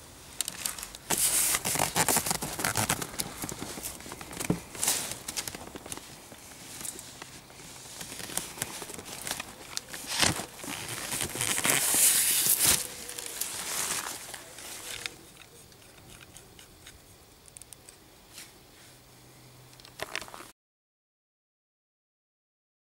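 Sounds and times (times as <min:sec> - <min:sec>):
cardboard rustling: 0:00.4 - 0:15.3
cardboard scraping and tearing: 0:00.6 - 0:15.1.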